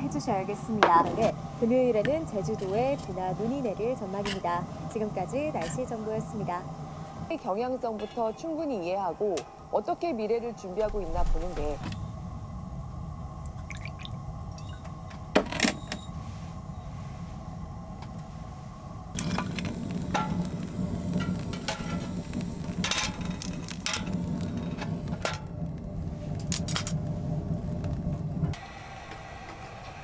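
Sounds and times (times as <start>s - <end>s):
logs crackling in stove: 0.0s - 30.0s
low rumble of fire: 0.0s - 30.0s
drink pouring into glass: 13.5s - 14.8s.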